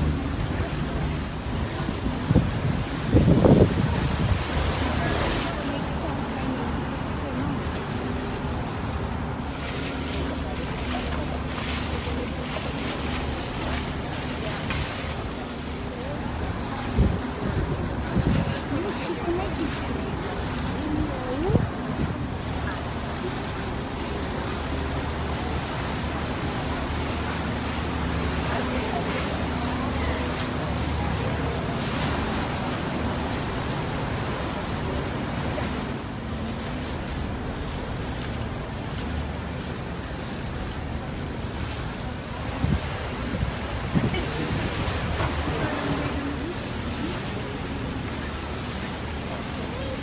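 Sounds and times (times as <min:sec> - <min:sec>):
wind noise on microphone: 0:00.0 - 0:05.4, 0:16.4 - 0:19.1, 0:20.3 - 0:23.1, 0:31.2 - 0:48.8
boat engine drone: 0:00.0 - 0:50.0
water wash: 0:00.0 - 0:50.0.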